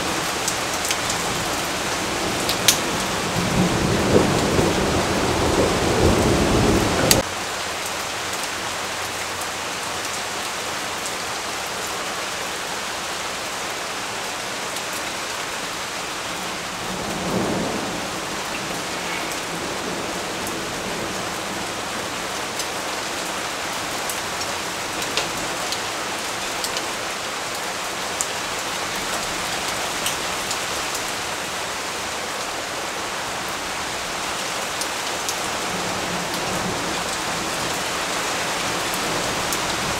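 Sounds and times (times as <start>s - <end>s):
steady rain: 0.0s - 39.9s
thunder rumbling: 0.1s - 7.2s.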